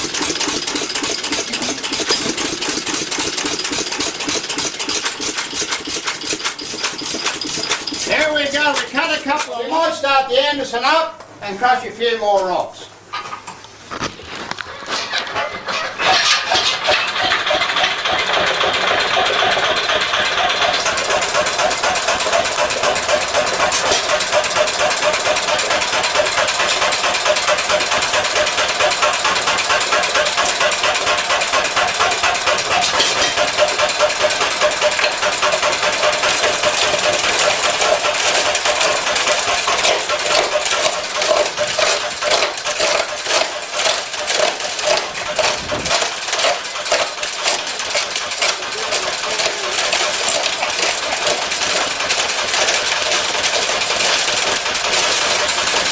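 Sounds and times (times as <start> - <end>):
rock crusher knocking: 0.0 - 10.0, 16.0 - 55.9.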